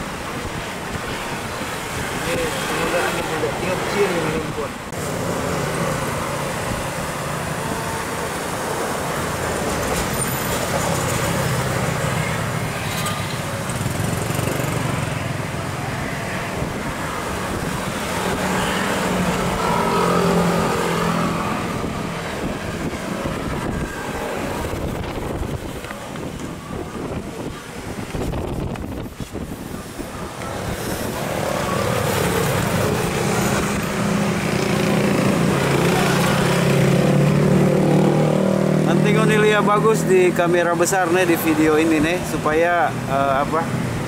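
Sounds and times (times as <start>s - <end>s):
wind and water rush: 0.0s - 44.0s.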